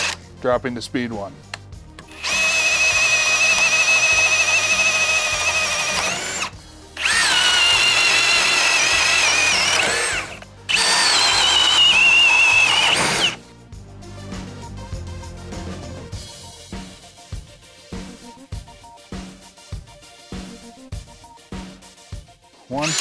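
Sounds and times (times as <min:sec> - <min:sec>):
hammer drill whining into wood: 0:00.0 - 0:00.2, 0:02.0 - 0:13.4, 0:22.8 - 0:23.0.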